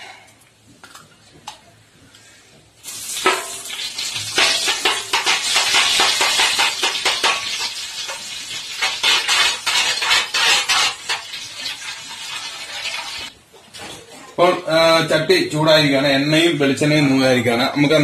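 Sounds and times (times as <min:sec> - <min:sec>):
ghee sizzling in hot oil: 0:02.8 - 0:13.3.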